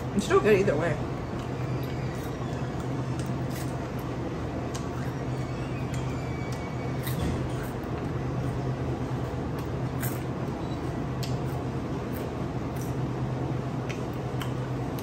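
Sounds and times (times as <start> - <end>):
low indoor hum: 0.0 - 15.0.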